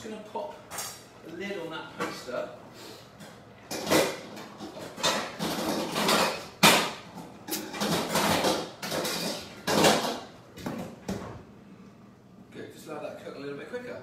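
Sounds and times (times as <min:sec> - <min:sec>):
pots and pans clattering: 0:03.7 - 0:10.8.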